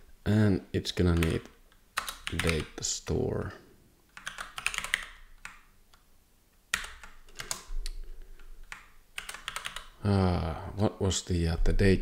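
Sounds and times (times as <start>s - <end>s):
typing on computer keyboard: 1.2s - 2.7s, 4.1s - 5.7s, 6.7s - 8.0s, 8.6s - 10.0s.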